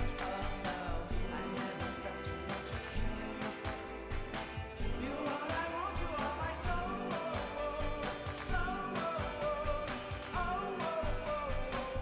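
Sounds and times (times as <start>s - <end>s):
pop song with singing over beat: 0.0s - 12.0s.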